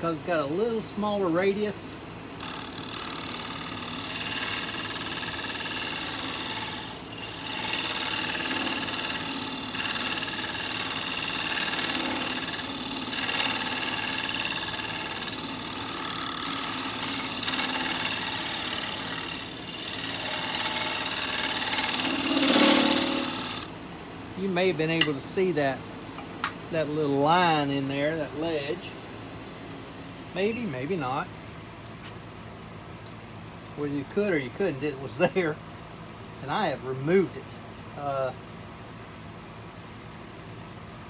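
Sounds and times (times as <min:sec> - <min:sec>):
lathe motor humming: 0:02.4 - 0:23.7
lathe tool scraping wood: 0:02.4 - 0:23.7.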